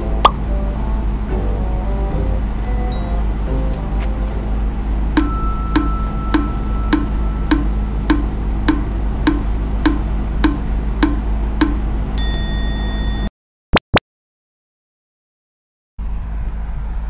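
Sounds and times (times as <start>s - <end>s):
steady low hum: 0.0s - 13.3s
bright chime: 5.2s - 7.5s, 12.2s - 13.3s
wood-block ticking: 5.2s - 11.9s.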